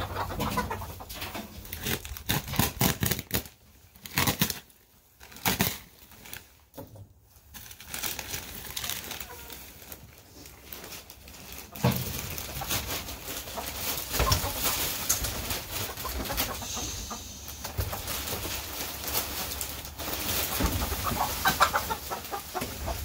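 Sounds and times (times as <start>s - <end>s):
hens clucking: 0.0s - 2.1s, 11.0s - 23.0s
wood shavings pouring from plastic bag: 7.4s - 23.0s.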